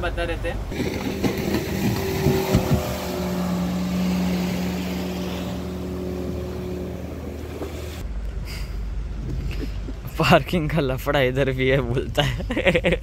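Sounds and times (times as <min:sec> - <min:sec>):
wind: 0:00.0 - 0:13.0
rushing water: 0:00.6 - 0:08.0
speedboat outboard motor passing: 0:00.6 - 0:08.0.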